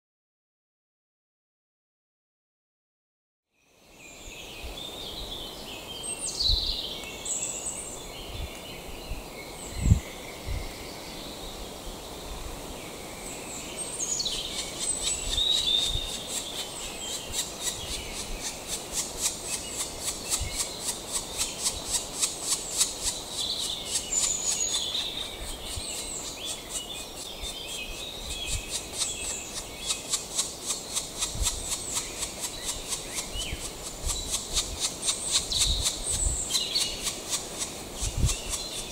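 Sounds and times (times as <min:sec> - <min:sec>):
fast short high bird calls: 0:14.1 - 0:37.2.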